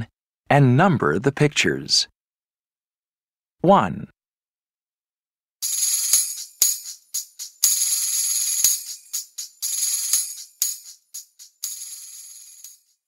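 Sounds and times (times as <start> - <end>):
sharp tambourine strikes: 5.6 - 12.9
tambourine jingle rolls: 5.6 - 13.0.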